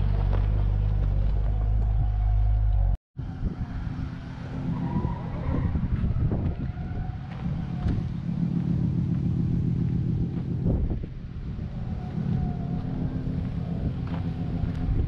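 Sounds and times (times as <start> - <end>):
car engine idling: 6.0 - 15.0.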